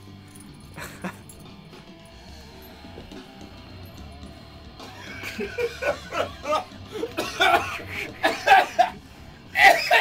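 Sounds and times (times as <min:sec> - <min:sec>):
people laughing: 0:04.8 - 0:09.0.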